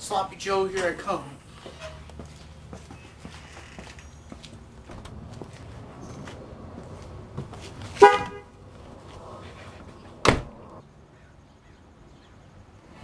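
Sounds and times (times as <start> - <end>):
car horn toot: 8.0 - 8.6
car door slamming: 10.2 - 10.7.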